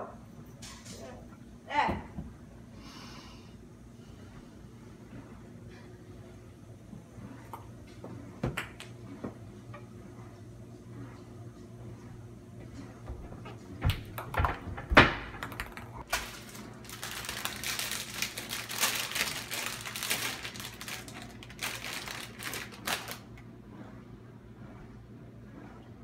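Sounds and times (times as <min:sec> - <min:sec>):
plastic wrapper crinkling: 0:16.0 - 0:23.3.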